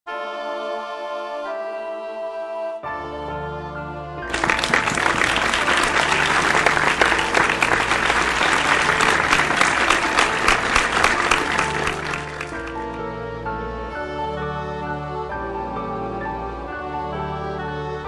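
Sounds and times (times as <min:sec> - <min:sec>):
calm instrumental music: 0:00.1 - 0:18.0
audience applauding: 0:04.3 - 0:13.0.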